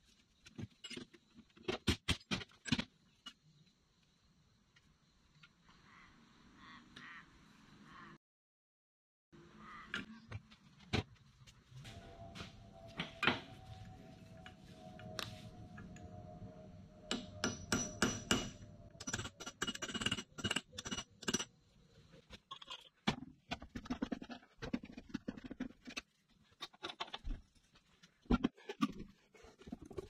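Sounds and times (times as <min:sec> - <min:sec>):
hand tools tapping on metal: 0:17.1 - 0:21.6.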